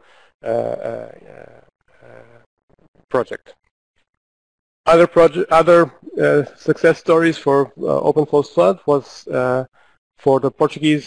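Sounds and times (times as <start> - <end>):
man saying uhh: 0.4 - 2.4.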